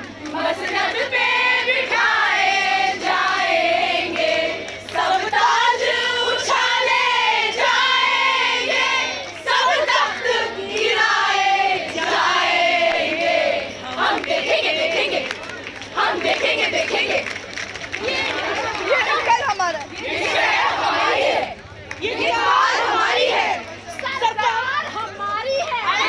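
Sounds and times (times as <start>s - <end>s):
women singing in unison: 0.3s - 17.3s.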